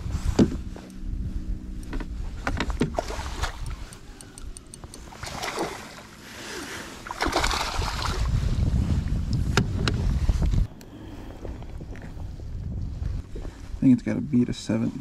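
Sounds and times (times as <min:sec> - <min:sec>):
wind rumble on microphone: 0:00.0 - 0:05.5, 0:07.2 - 0:15.0
fish splashing at the surface: 0:05.1 - 0:06.0, 0:07.0 - 0:08.3.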